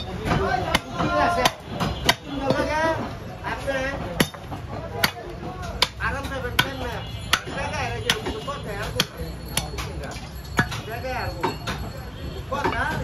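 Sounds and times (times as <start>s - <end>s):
voices talking: 0.0s - 13.0s
cleaver chopping on wooden block: 4.2s - 9.9s.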